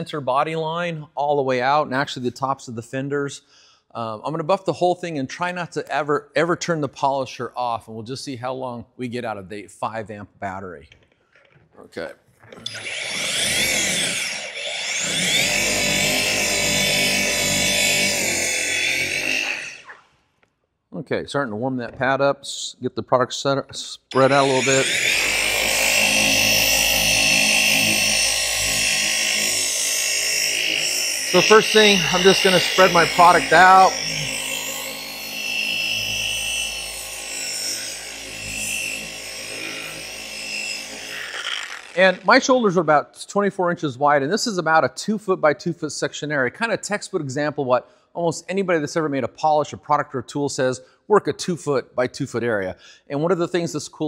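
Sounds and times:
orbital polisher running: 0:12.6 - 0:19.9, 0:24.1 - 0:42.4.

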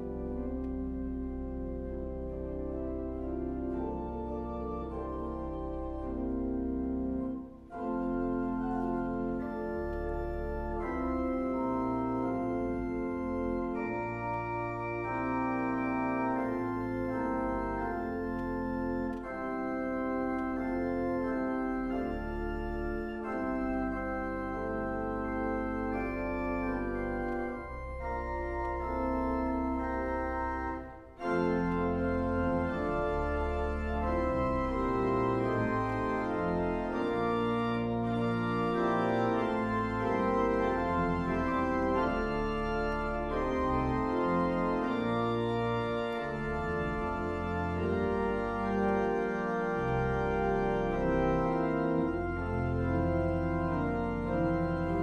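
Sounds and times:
organ music: 0:00.0 - 0:55.0.

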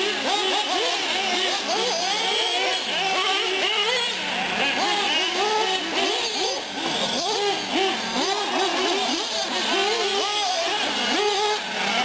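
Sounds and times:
rc car engines revving: 0:00.0 - 0:12.0.

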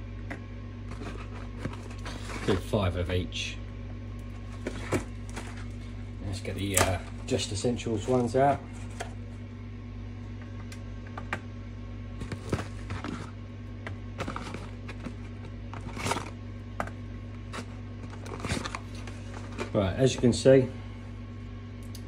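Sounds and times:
low hum: 0:00.0 - 0:22.0
cardboard box rustling: 0:00.9 - 0:02.8, 0:04.4 - 0:05.8, 0:12.2 - 0:13.4, 0:14.2 - 0:16.4, 0:17.5 - 0:19.8.

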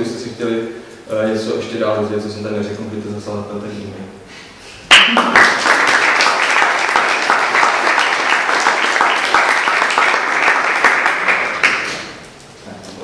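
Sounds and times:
audience applauding: 0:04.9 - 0:12.2.

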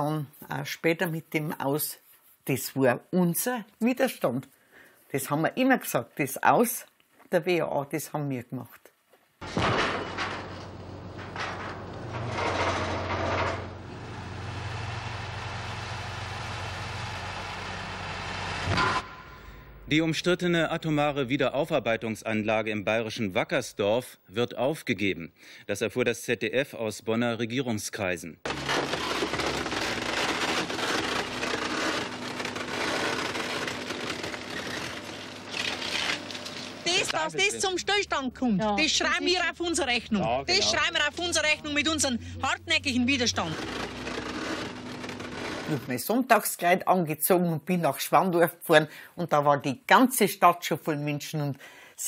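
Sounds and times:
concrete debris crashing: 0:09.4 - 0:14.1, 0:28.5 - 0:37.0
crane engine droning: 0:10.4 - 0:19.8, 0:40.6 - 0:45.7.

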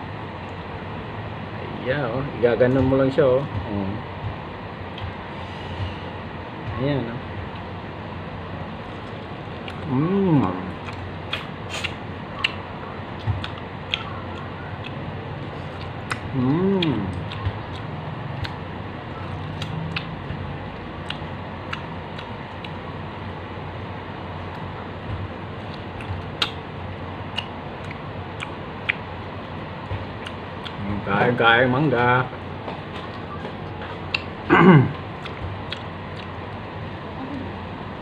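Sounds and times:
voiced hum: 0:00.0 - 0:38.0
wet mouth clicks and lip smacks: 0:10.8 - 0:12.6, 0:13.4 - 0:15.0, 0:15.8 - 0:18.6, 0:19.4 - 0:20.2, 0:25.7 - 0:26.6, 0:27.3 - 0:29.0, 0:33.1 - 0:34.3, 0:35.2 - 0:36.4.

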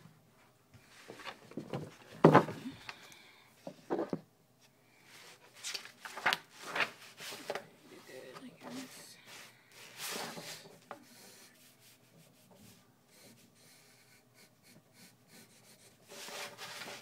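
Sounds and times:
paper sliding and rustling: 0:00.8 - 0:02.5, 0:05.1 - 0:13.6, 0:16.0 - 0:17.0.

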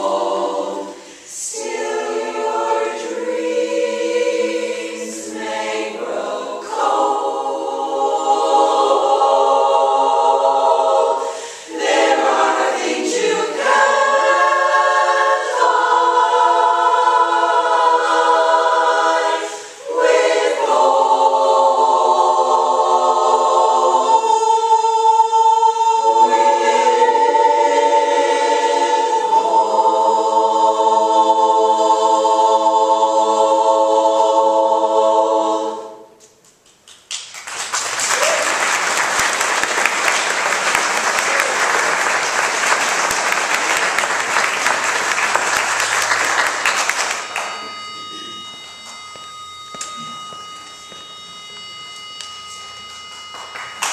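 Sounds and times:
women's chorus singing in harmony: 0:00.0 - 0:36.2
singers breathing: 0:00.9 - 0:01.4, 0:11.2 - 0:11.8, 0:19.4 - 0:19.9.

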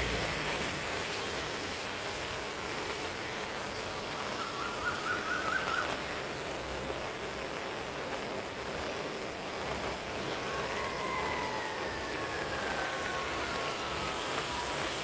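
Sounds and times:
rain on foliage: 0:00.0 - 0:15.0.

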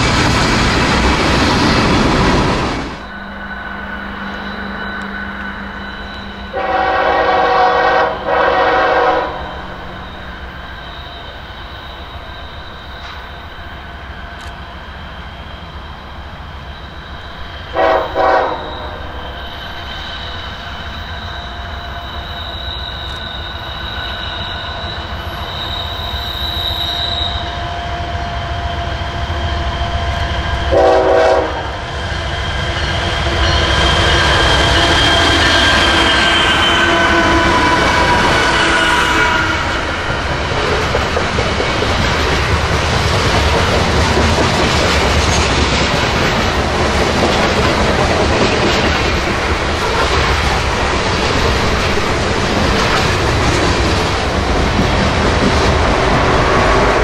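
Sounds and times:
train rumble: 0:00.0 - 0:57.0
locomotive air horn blasts: 0:06.5 - 0:09.7, 0:17.7 - 0:19.0, 0:30.7 - 0:31.8, 0:35.0 - 0:39.9.

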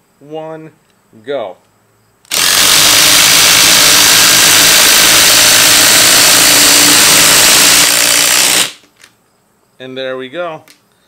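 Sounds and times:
impact drivers rattling: 0:02.3 - 0:08.9.

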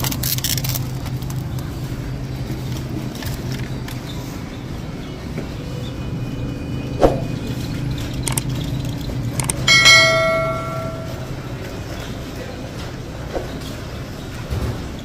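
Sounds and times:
steady low hum: 0:01.2 - 0:11.9
bell ding: 0:09.7 - 0:11.3.

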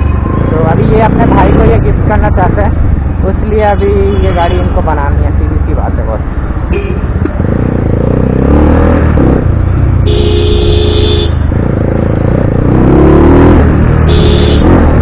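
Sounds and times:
motorcycle engine revving: 0:00.5 - 0:03.3, 0:06.7 - 0:15.0
vehicle horn honking: 0:10.0 - 0:11.4, 0:14.1 - 0:14.7.

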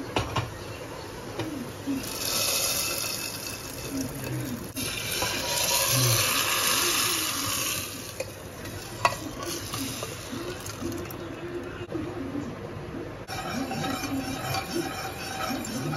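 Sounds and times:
hot oil sizzling: 0:02.0 - 0:11.2, 0:13.3 - 0:15.9.

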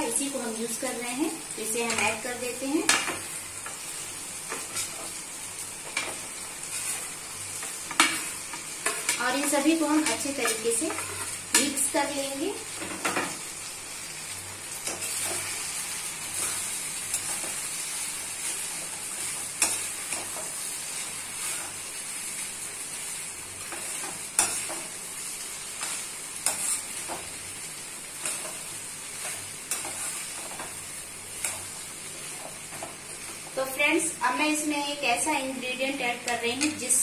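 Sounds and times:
rice frying with sizzle: 0:00.0 - 0:37.0
spoon scraping metal pan: 0:07.9 - 0:11.9, 0:25.8 - 0:27.3, 0:29.2 - 0:30.7.

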